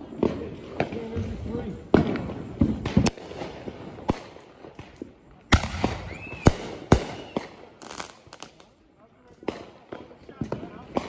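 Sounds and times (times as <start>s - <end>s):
fireworks exploding: 0.0s - 11.0s
firework whistle: 5.5s - 8.2s.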